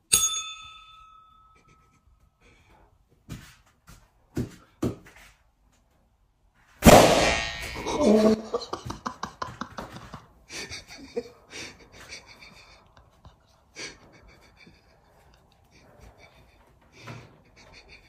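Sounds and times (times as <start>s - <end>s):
foam pool noodle whacks: 6.8s - 7.6s
loud hit with ringing tail: 6.8s - 8.0s
person breathing: 10.5s - 18.0s.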